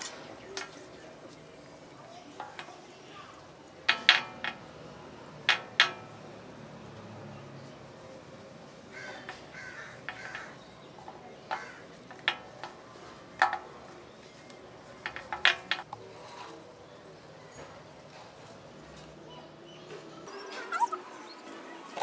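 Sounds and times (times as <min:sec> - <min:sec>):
crows cawing: 0:08.9 - 0:10.6, 0:11.5 - 0:12.0.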